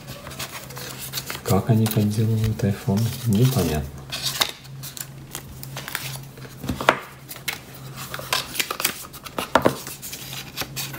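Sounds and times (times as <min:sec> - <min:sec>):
low steady hum: 0:00.0 - 0:10.9
paper packaging rustling: 0:00.0 - 0:10.9
paper tray clacks: 0:00.1 - 0:04.5.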